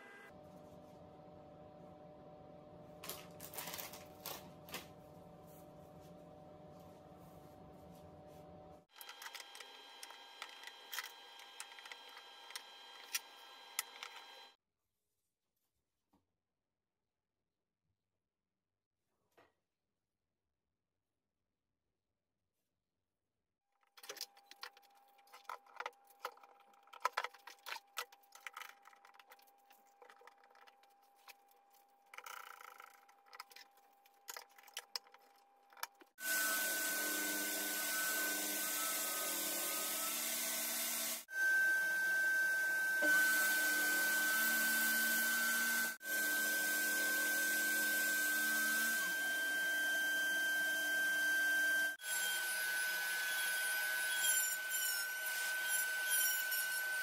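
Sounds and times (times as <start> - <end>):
router cutting with high whine: 36.2 - 57.0.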